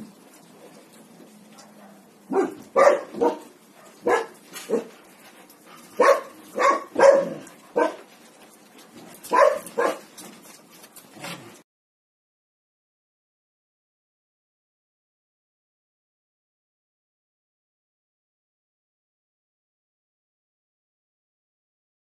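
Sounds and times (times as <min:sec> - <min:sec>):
dog barking: 0:01.6 - 0:05.0, 0:06.0 - 0:08.1, 0:09.3 - 0:10.1.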